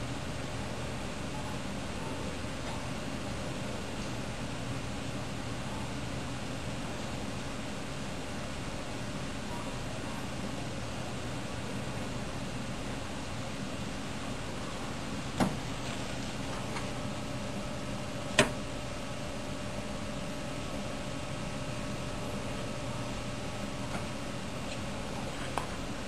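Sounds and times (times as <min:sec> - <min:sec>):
office equipment humming: 0:00.0 - 0:26.0.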